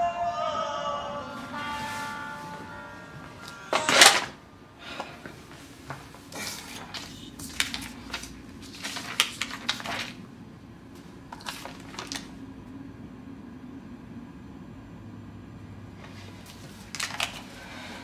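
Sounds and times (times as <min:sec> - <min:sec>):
low steady hum: 0:00.0 - 0:18.0
paper rustling and crackling: 0:06.4 - 0:10.3, 0:11.0 - 0:12.4, 0:16.0 - 0:17.8.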